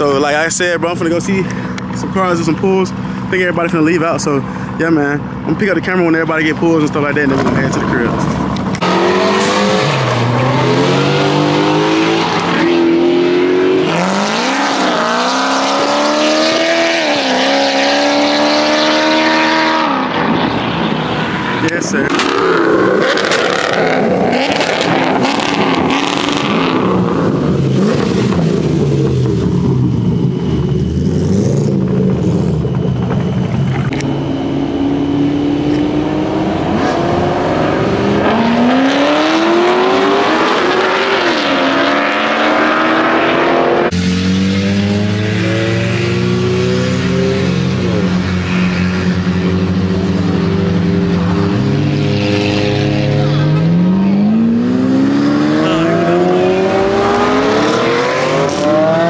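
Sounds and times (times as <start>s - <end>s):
engine running steadily: 0.0s - 9.7s, 21.1s - 38.9s
car engines revving: 0.0s - 59.0s.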